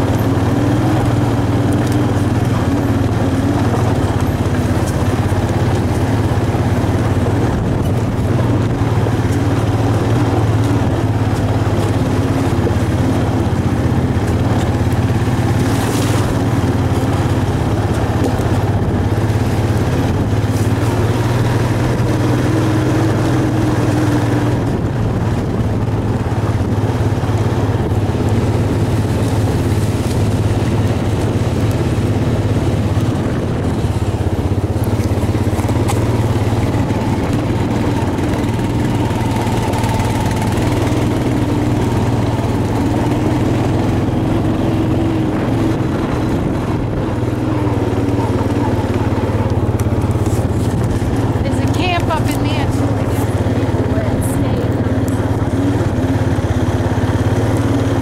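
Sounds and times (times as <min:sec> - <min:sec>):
atv engine running: 0:00.0 - 0:58.0.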